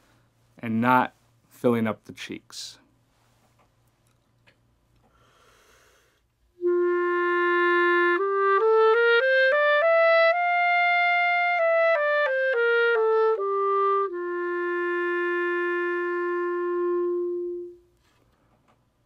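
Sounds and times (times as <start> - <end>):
clarinet playing a scale: 6.6 - 17.9.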